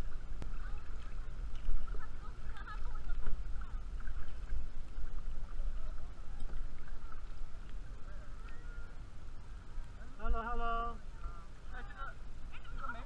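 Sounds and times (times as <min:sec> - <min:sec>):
paddle strokes in water: 0:00.0 - 0:10.1
low wind rumble on microphone: 0:00.0 - 0:10.3
water against hull: 0:00.0 - 0:13.0.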